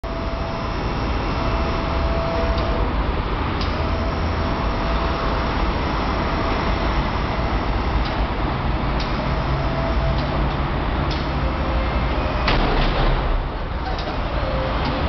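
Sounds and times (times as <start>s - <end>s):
hydraulic pump humming: 0.0s - 15.0s.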